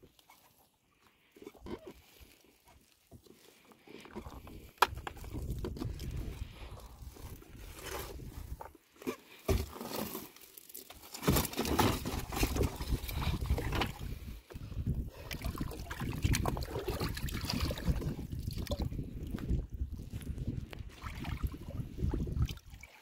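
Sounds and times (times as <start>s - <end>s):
water sloshing around boat: 0.0s - 19.6s, 20.3s - 23.0s
knocks and rustles in boat: 1.4s - 10.3s, 10.9s - 14.8s.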